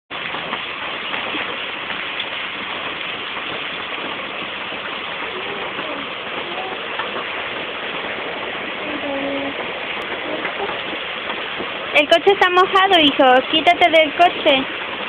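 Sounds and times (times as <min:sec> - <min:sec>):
rain falling on a car: 0:00.1 - 0:15.0.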